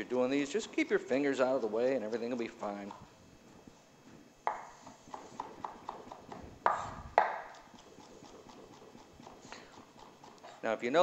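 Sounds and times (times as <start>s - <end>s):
knife tapping on wooden board: 4.5s - 7.7s.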